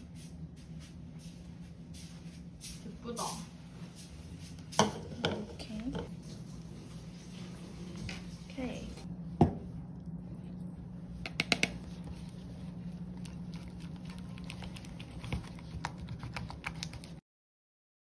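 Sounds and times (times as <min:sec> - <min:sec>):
steady low hum: 0:00.0 - 0:17.2
spatula tapping plastic bowl: 0:11.3 - 0:11.8.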